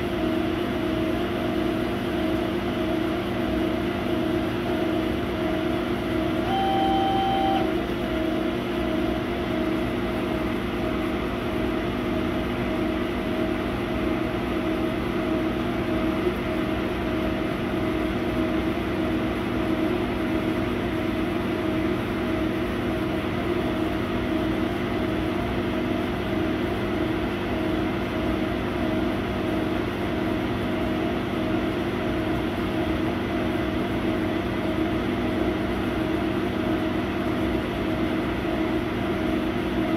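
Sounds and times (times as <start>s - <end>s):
laser cutter humming and whirring: 0.0s - 39.9s
short high tone: 6.4s - 7.8s.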